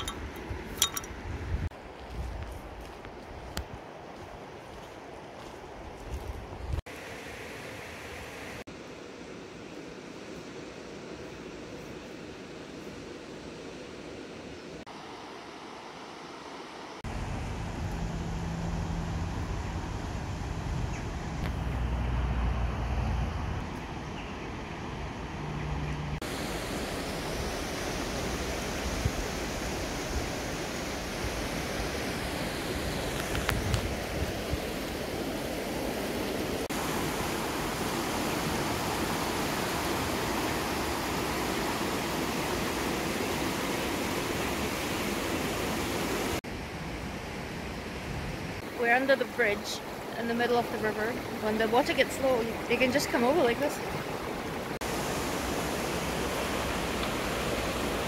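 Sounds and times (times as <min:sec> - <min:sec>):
river water rushing over stones: 0:26.2 - 0:46.4, 0:48.6 - 0:58.0.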